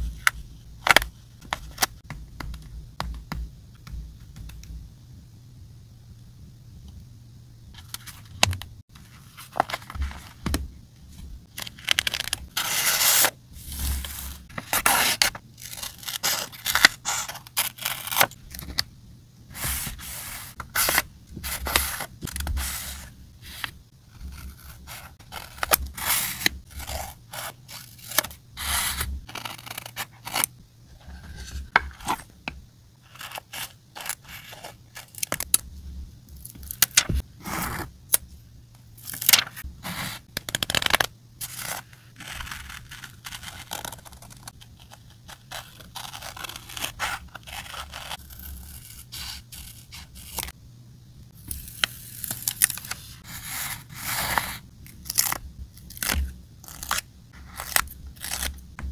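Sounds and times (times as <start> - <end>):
paper rustling: 8.9 - 10.6.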